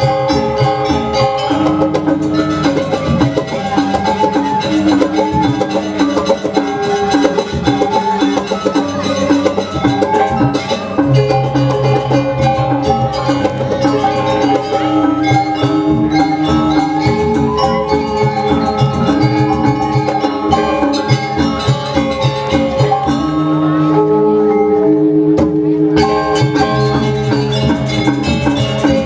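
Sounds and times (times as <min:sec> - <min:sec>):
gamelan ensemble playing: 0:00.0 - 0:29.0.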